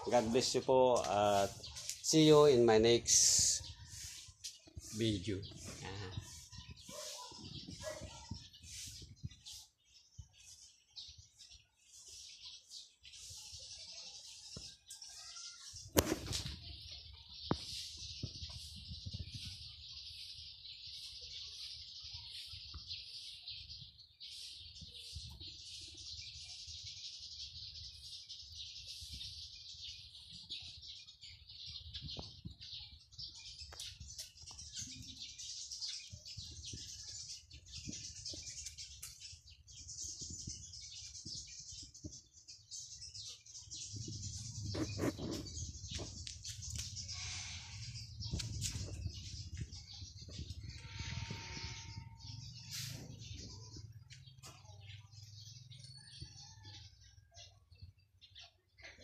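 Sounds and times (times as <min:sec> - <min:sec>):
high-pitched chirping chorus: 0:00.0 - 0:56.7.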